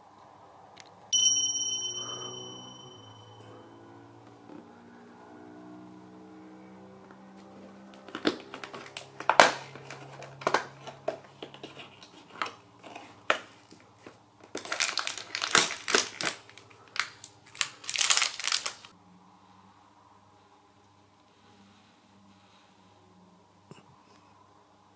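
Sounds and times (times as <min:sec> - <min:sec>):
plastic sweet packet crinkling: 0:08.1 - 0:13.8, 0:14.4 - 0:18.9.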